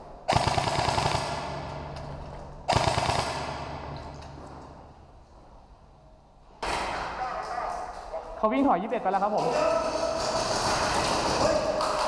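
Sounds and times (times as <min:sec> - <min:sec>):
rapid airsoft gunfire: 0:00.3 - 0:01.7, 0:02.7 - 0:03.9, 0:09.8 - 0:12.0.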